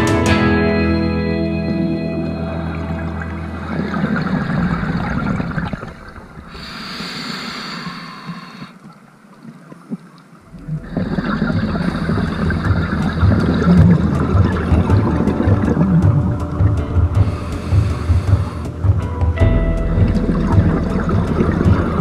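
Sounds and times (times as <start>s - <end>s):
exhaled bubbles gurgling underwater: 2.8s - 19.0s, 19.8s - 22.0s
regulator hissing inhale underwater: 6.5s - 8.9s.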